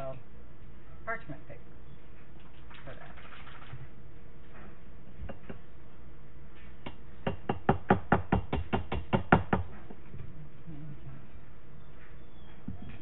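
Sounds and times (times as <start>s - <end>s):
sharp knocks on kitchen vessel: 6.8s - 9.8s.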